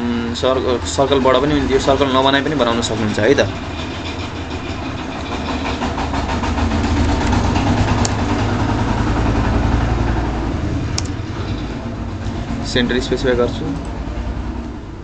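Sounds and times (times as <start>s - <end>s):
low engine rumble: 0.0s - 15.0s
sharp clicks: 7.1s - 8.3s.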